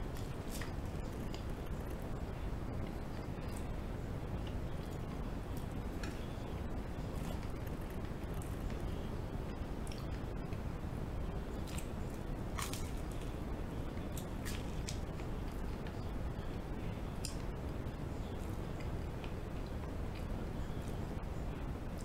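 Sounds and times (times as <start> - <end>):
person chewing bread: 0.0 - 9.0, 11.3 - 16.0
low background hiss: 0.0 - 22.0
crisp crunches: 12.6 - 13.3.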